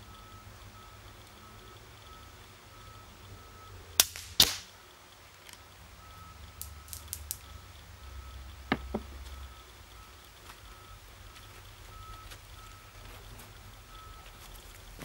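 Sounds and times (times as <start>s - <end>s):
faint intermittent beeping: 0.0s - 4.0s, 4.7s - 15.0s
air rifle shot cracks: 4.0s - 4.7s.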